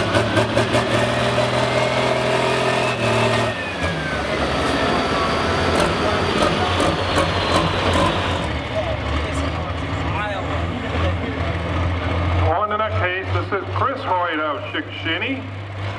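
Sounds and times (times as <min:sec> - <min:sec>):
tractor engine idling: 0:03.6 - 0:15.9.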